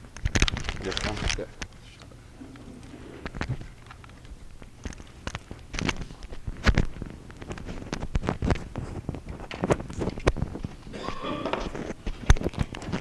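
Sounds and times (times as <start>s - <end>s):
microphone handling noise: 2.3s - 3.8s, 4.6s - 13.0s.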